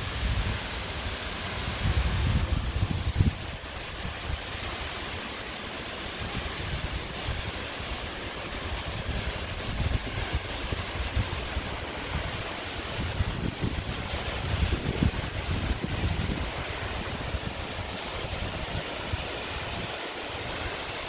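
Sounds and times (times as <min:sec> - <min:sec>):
wind buffeting microphone: 0:00.0 - 0:04.7, 0:06.1 - 0:20.8
waterfall rushing into pool: 0:00.0 - 0:21.0.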